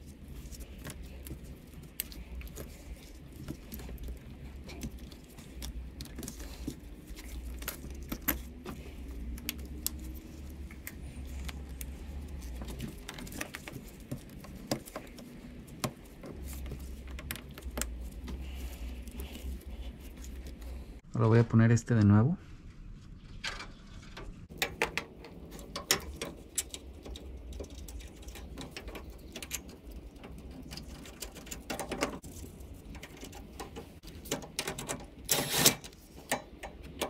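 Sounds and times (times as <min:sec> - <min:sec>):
plastic and rubber parts clicking: 0:00.4 - 0:20.7.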